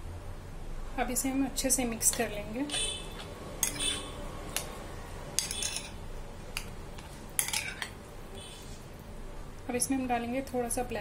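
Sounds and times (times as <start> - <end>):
metal spoon clinking on glass: 3.6 - 4.0, 5.4 - 6.0, 7.4 - 8.0.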